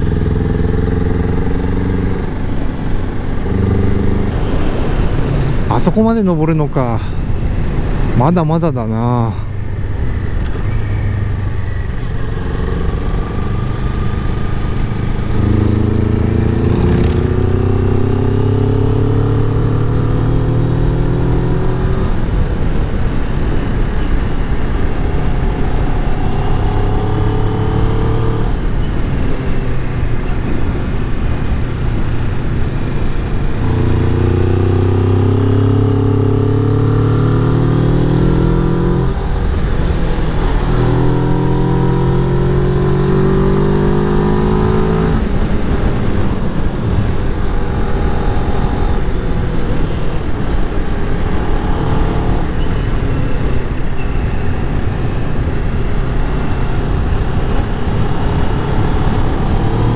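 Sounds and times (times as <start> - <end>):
motorcycle engine revving uphill: 0.0 - 5.7, 10.8 - 22.6, 24.2 - 59.9
wind rush: 1.4 - 19.1, 37.6 - 59.9.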